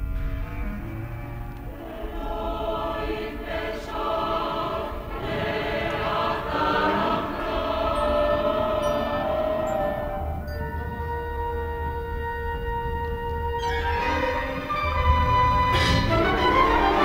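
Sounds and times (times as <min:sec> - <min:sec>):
mixed choir singing chords: 0:01.6 - 0:17.0.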